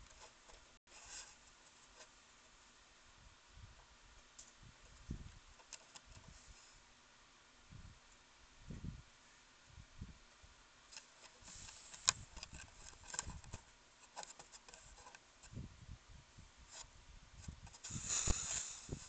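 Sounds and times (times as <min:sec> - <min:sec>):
fur and paws scraping camera: 0:11.0 - 0:15.2, 0:16.7 - 0:19.0.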